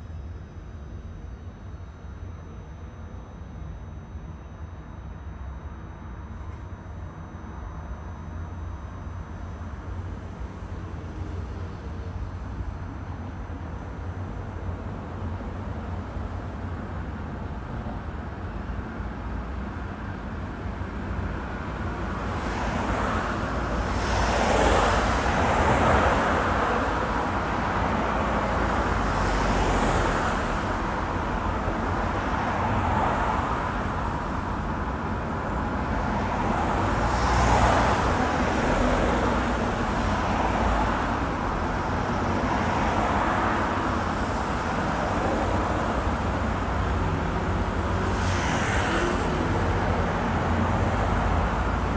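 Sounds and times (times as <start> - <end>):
steady traffic hum: 0.0 - 51.9
cars passing: 22.2 - 51.9.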